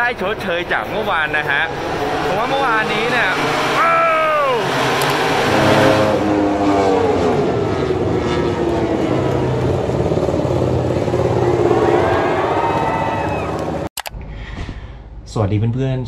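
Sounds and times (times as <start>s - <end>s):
motorcycle engine slowing down: 1.4s - 13.9s.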